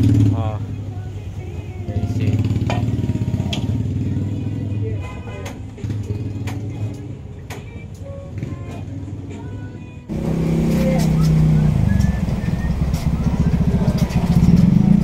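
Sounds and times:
vehicle engine running close by: 0.0s - 0.9s, 10.1s - 15.0s
street traffic: 0.0s - 15.0s.

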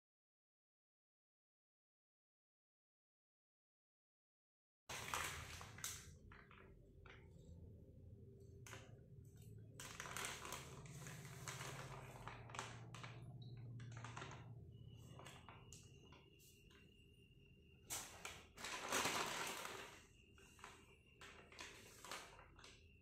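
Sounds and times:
plastic bag crinkling: 4.9s - 7.7s, 9.7s - 15.9s, 17.9s - 22.8s.

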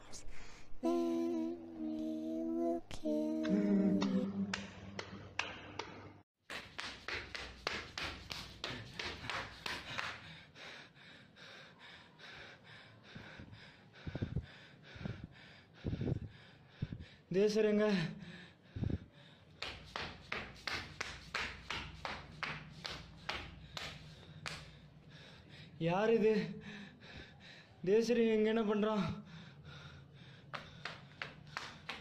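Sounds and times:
person singing creepy tune: 0.8s - 4.6s
heavy panting: 7.0s - 17.3s, 29.2s - 32.0s.

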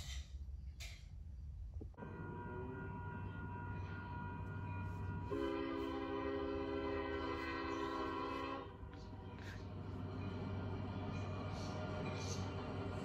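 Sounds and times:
low rumble of train: 0.0s - 13.0s
locomotive air horn: 2.0s - 9.5s.

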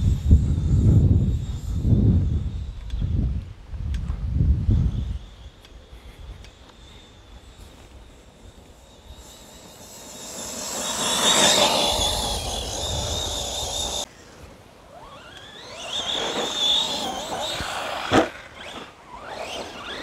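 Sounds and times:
electric motor whining: 4.8s - 14.1s, 14.8s - 20.0s.

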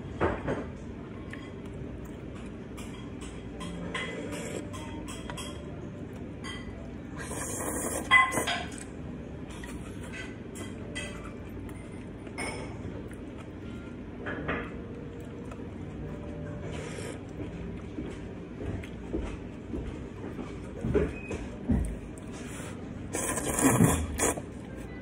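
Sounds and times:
person slurping noodles: 7.2s - 8.4s, 23.1s - 24.5s.

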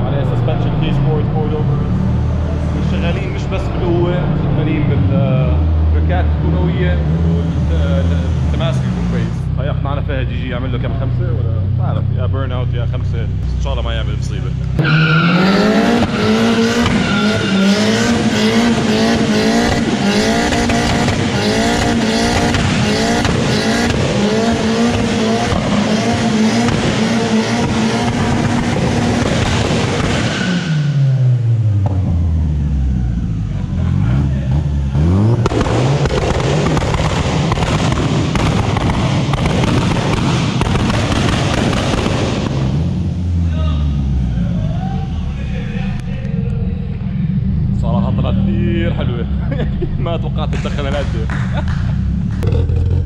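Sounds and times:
car engine at high revs: 0.0s - 53.0s
exhaust crackling and popping: 6.0s - 32.7s, 33.3s - 44.6s, 45.8s - 53.0s
tyres squealing: 14.8s - 18.1s.

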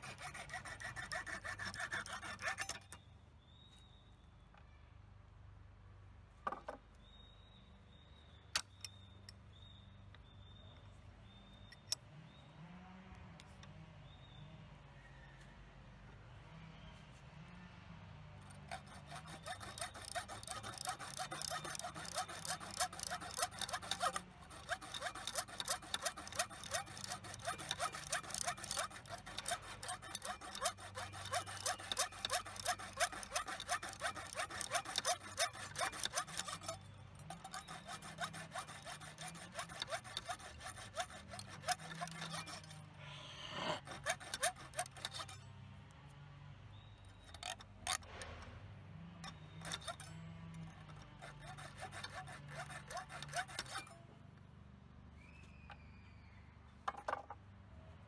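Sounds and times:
hand tool rasping on steel: 0.0s - 3.0s, 18.4s - 45.4s, 47.2s - 48.2s, 49.2s - 54.1s.

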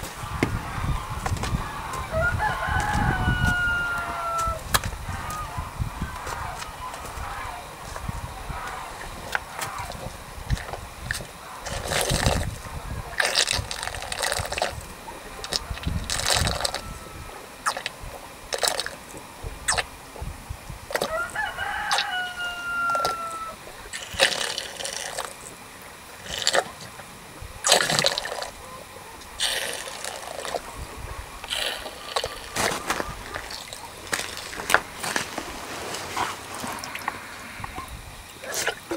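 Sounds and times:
rooster crowing: 0.0s - 10.4s, 15.3s - 17.6s, 20.9s - 23.8s
cow slurping water: 0.0s - 38.9s.

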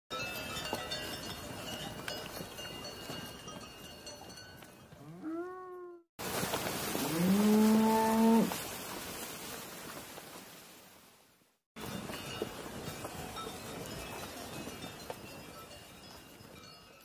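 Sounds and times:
cattle mooing: 5.0s - 6.0s, 7.0s - 8.6s.

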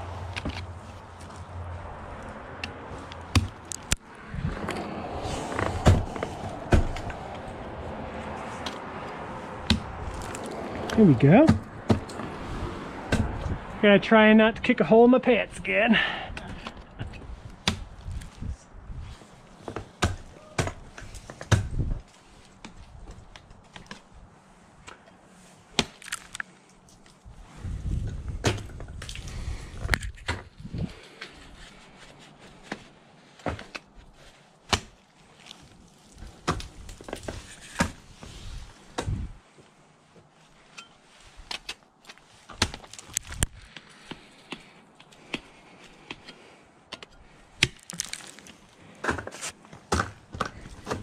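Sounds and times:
low rumbling: 0.0s - 13.9s
ice tools chopping into ice: 47.6s - 50.2s.

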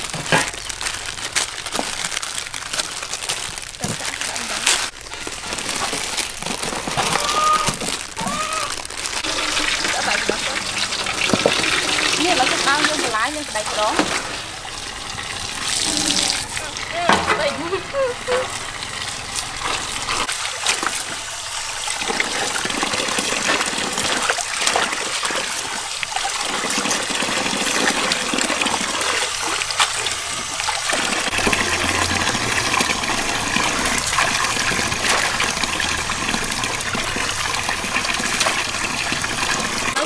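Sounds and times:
tap water pouring into basin: 8.8s - 40.0s
hands stirring in water: 22.0s - 40.0s.

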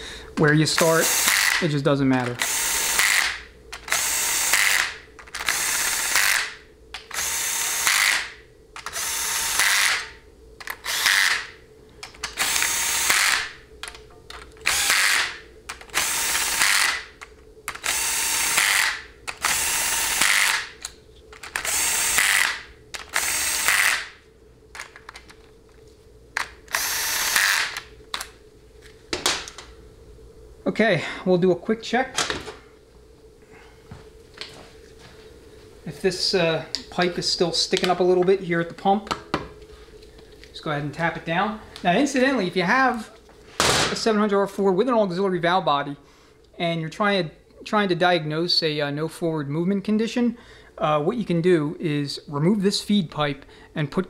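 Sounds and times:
cordless drill short spins: 0.8s - 1.6s, 14.7s - 15.3s, 17.8s - 20.7s, 21.5s - 24.1s, 26.7s - 27.8s.

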